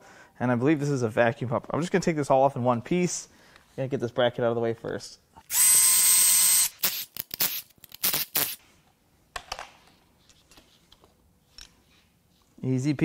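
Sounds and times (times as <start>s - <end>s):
cordless ratchet motor whine: 5.5s - 8.5s.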